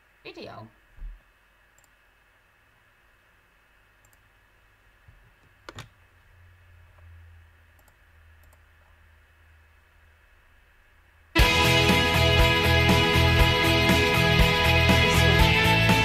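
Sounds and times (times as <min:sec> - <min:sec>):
faint low hum: 0:00.0 - 0:11.4
computer mouse clicking: 0:01.7 - 0:02.0, 0:04.0 - 0:04.3, 0:05.4 - 0:06.0, 0:07.7 - 0:08.7.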